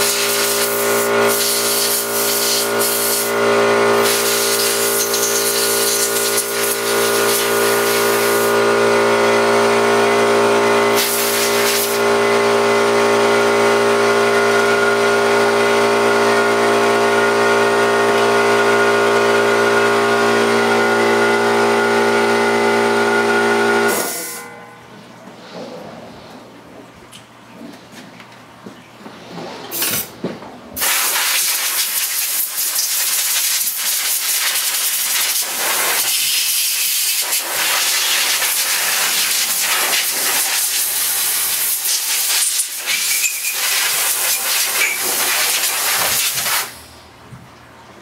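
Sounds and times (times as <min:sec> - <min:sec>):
spray cleaner hissing: 0:00.0 - 0:08.6, 0:10.9 - 0:12.0, 0:30.8 - 0:46.9.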